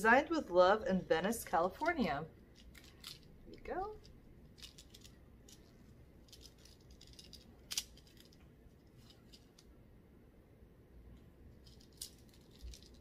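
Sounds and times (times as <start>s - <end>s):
packaging clicking and rattling: 2.5s - 3.4s, 4.0s - 9.6s, 11.6s - 13.0s.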